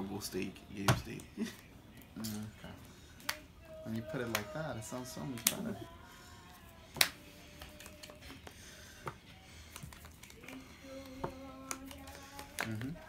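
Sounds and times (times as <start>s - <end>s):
cards clicking and tapping: 6.9s - 13.0s.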